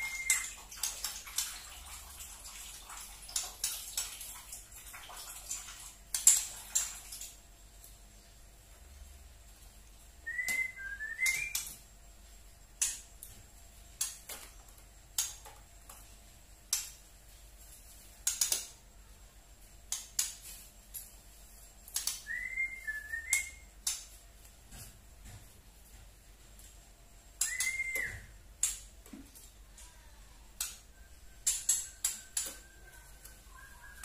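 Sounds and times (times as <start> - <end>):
soft gliding bird whistles: 30.9 - 34.0.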